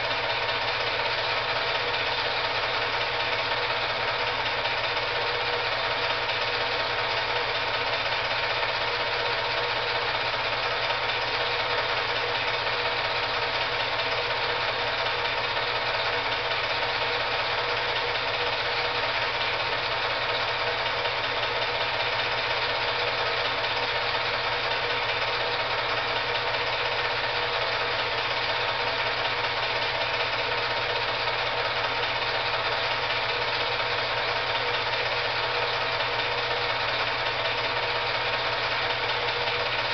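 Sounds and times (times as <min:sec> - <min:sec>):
film projector clattering: 0:00.0 - 0:39.9.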